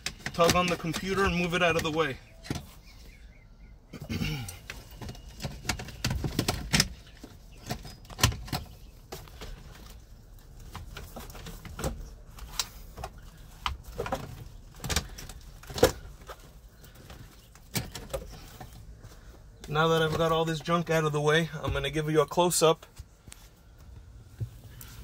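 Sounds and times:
plastic clicks and rustles: 0.0s - 2.7s, 4.4s - 19.0s.

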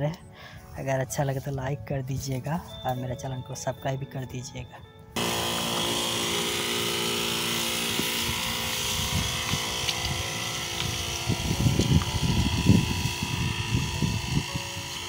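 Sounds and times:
electric pump running: 5.2s - 15.0s
spray hissing from nozzle: 5.2s - 15.0s.

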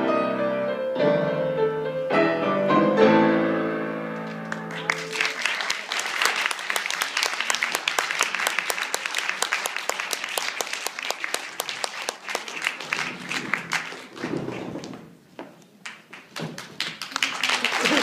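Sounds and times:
audience applauding: 4.2s - 15.0s, 15.8s - 18.0s.

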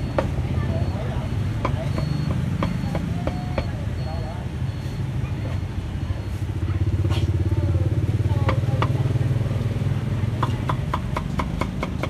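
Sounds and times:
cleaver chopping on block: 10.4s - 12.0s.

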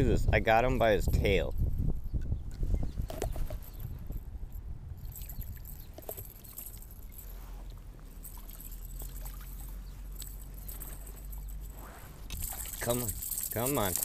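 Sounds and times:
steady low rumble: 0.0s - 14.0s
light water sounds: 5.0s - 14.0s.

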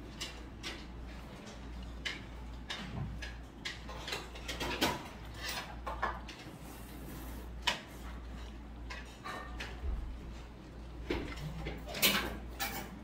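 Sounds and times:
chopsticks clicking on plate: 1.8s - 4.5s.

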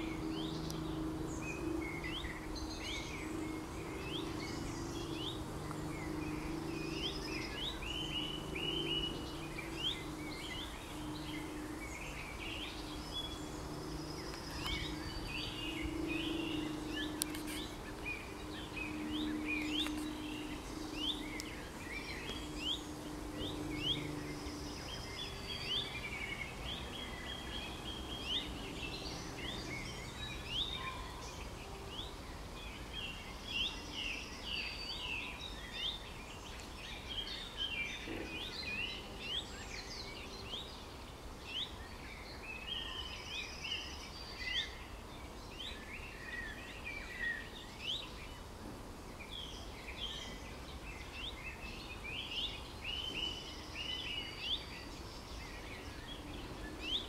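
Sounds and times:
faint background hiss: 0.0s - 57.0s
songbirds chirping and whistling: 0.0s - 57.0s.

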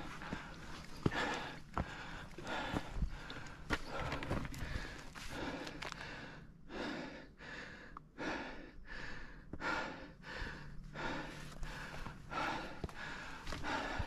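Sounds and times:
person breathing hard: 0.0s - 14.0s.

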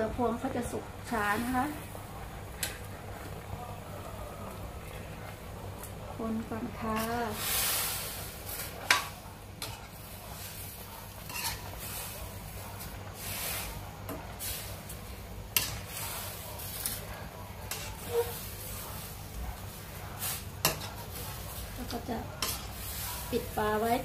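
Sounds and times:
spatula scraping a pot: 11.2s - 12.4s, 15.6s - 19.2s.

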